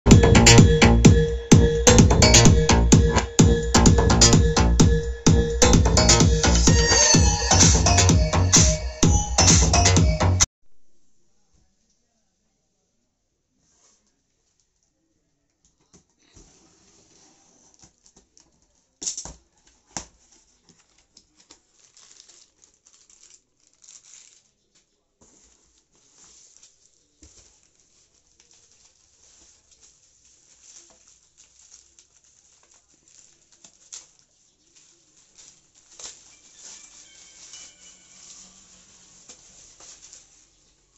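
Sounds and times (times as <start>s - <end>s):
packing rustling and tearing: 16.5s - 40.9s.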